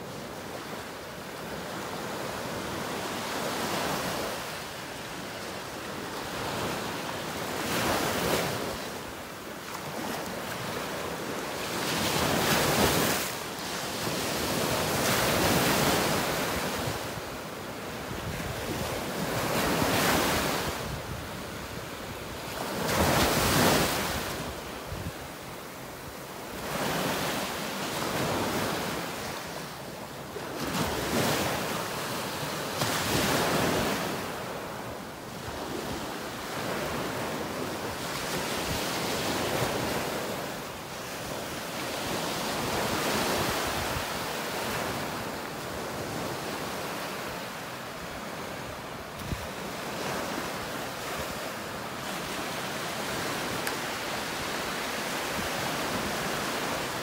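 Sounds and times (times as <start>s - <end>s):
small waves breaking on beach: 0.0s - 57.0s
wind on microphone: 17.9s - 25.3s, 48.6s - 50.4s.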